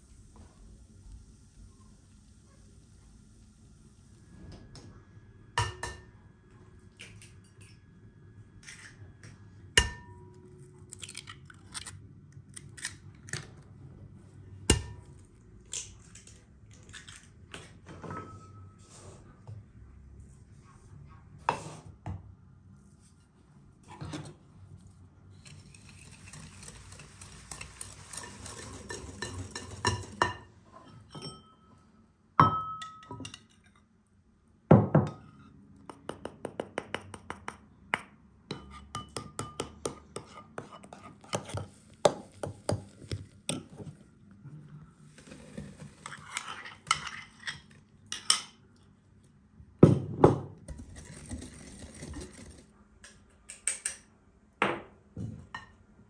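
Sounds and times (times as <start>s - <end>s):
whisk beating eggs in glass bowl: 25.4s - 30.4s
utensils clinking against bowls: 25.9s - 31.8s.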